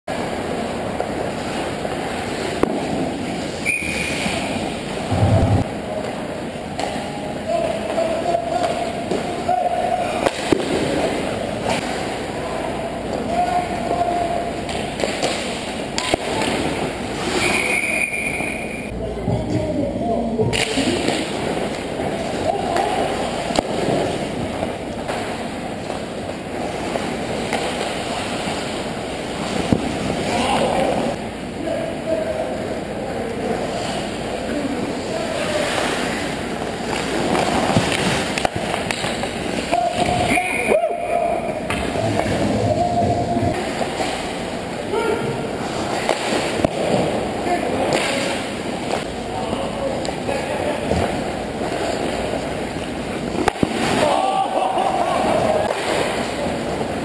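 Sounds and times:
skates on ice rink: 0.1s - 18.9s, 20.5s - 31.2s, 33.5s - 57.0s
referee's whistle blast: 3.6s - 4.5s, 17.4s - 18.9s
skates on ice: 35.4s - 40.6s.

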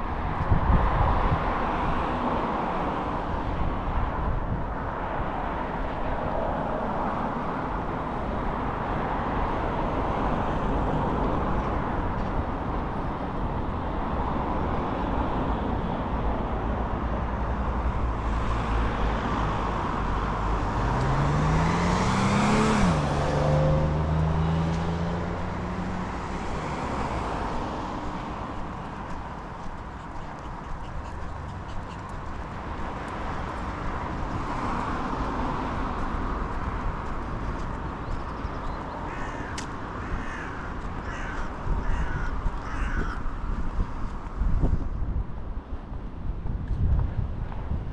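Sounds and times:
street traffic noise: 0.0s - 47.9s
vehicle engine passing close: 19.4s - 29.6s.

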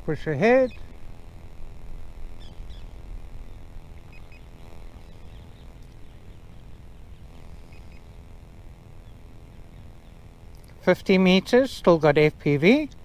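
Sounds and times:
distant drone motors humming: 0.0s - 13.0s
wind rumble on microphone: 0.0s - 13.0s
faint bird chirps: 0.5s - 1.0s, 2.3s - 10.4s.

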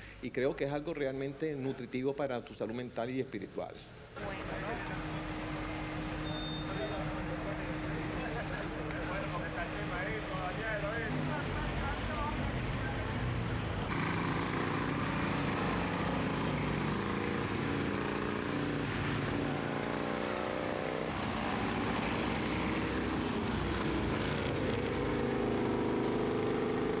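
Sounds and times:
motorcycle engines running: 4.2s - 27.0s.

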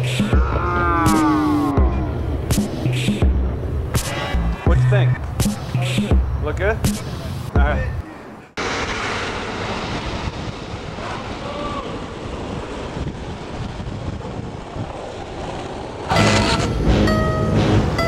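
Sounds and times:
music: 0.0s - 7.9s, 16.1s - 18.0s
wind on microphone: 8.6s - 16.9s
skateboard wheels rolling on asphalt: 8.6s - 18.0s.

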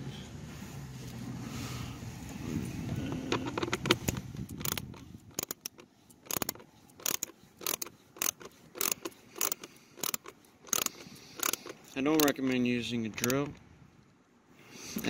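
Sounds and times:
screwdriver clicking: 3.3s - 12.6s, 13.2s - 13.6s.

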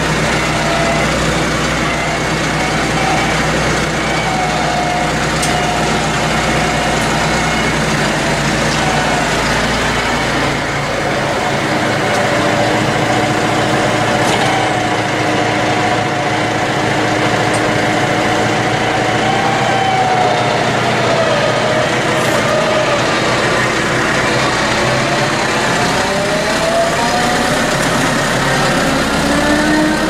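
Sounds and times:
tractor engine running: 0.0s - 30.0s
wavering whine: 0.0s - 30.0s.

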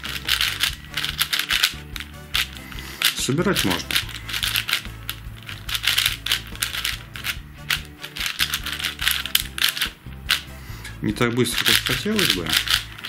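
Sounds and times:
puzzle cube clacking: 0.0s - 10.6s, 11.3s - 13.0s.

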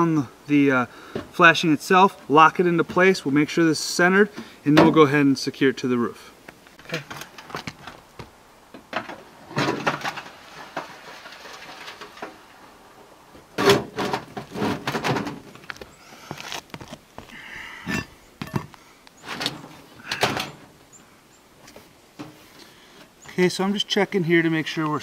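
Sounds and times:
handling noise: 6.4s - 23.5s.

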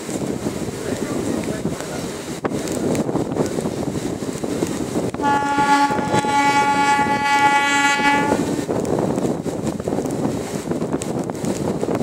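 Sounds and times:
moving train wind and rumble: 0.0s - 12.0s
train horn blast: 5.2s - 8.6s.

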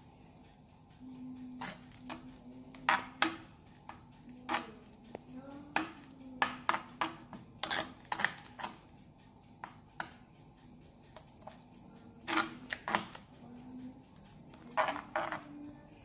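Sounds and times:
metal spoon scraping clay pot: 1.2s - 9.0s, 11.1s - 15.7s.

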